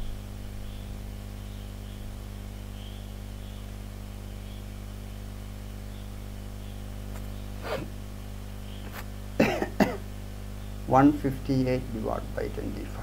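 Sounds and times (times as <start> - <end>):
electrical mains hum: 0.0 - 13.0
faint hiss: 6.9 - 13.0.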